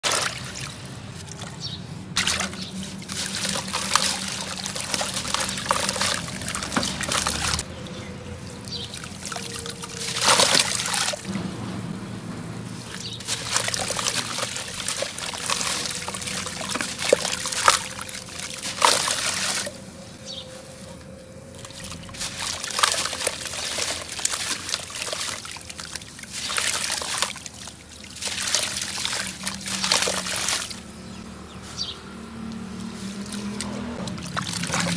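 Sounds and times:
grit splashing into water: 0.0s - 7.7s, 8.7s - 11.4s, 12.7s - 19.8s, 21.5s - 31.1s, 32.6s - 34.9s
wet cement clumps crumbling by hand: 2.2s - 7.7s, 8.7s - 11.3s, 12.9s - 31.2s.

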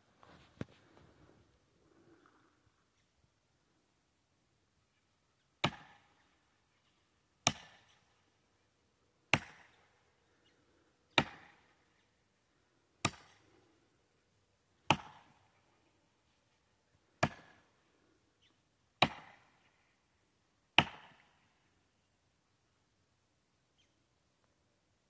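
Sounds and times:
axe chopping tree trunk: 5.6s - 6.1s, 7.4s - 8.0s, 9.3s - 9.8s, 11.1s - 11.7s, 13.0s - 13.4s, 14.8s - 15.4s, 17.2s - 17.6s, 19.0s - 19.7s, 20.8s - 21.3s.

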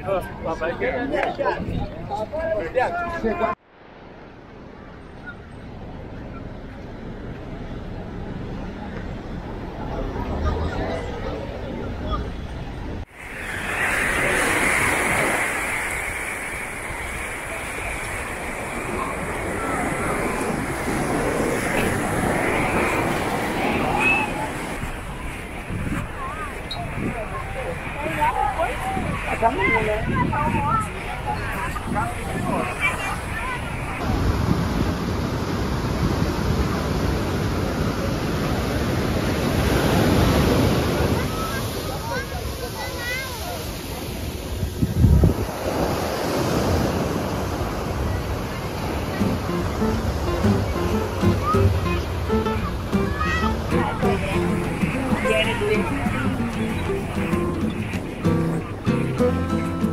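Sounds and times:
waves breaking on beach: 13.0s - 59.9s.

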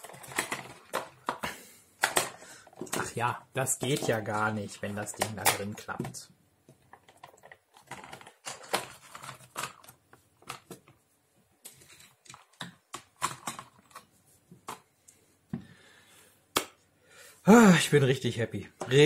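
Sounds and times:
plastic toy parts clicking: 0.0s - 1.4s, 2.0s - 3.2s, 11.7s - 14.1s.

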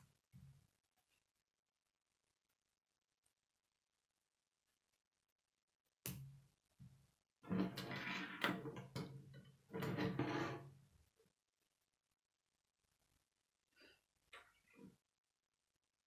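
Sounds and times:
plastic sliding across wooden table: 7.5s - 8.8s, 9.7s - 10.7s.

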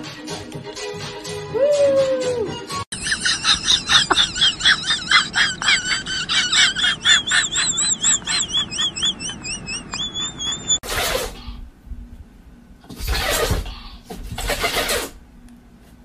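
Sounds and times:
dog whining: 6.7s - 11.6s.

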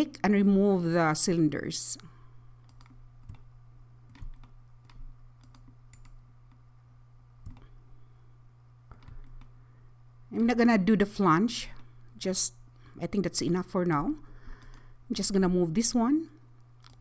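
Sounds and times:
steady low hum: 0.0s - 17.0s
computer mouse clicks: 2.6s - 3.5s, 4.1s - 6.6s, 7.4s - 7.7s.

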